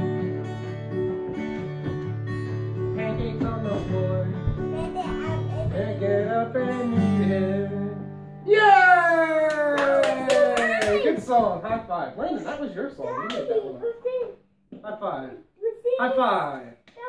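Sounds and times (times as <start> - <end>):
acoustic guitar strumming: 0.0 - 8.5
person singing: 2.9 - 8.1.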